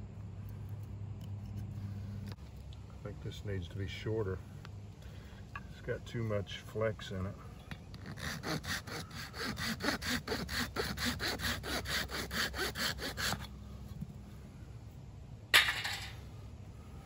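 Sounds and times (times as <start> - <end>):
pruning saw cutting stalk: 8.0 - 13.6.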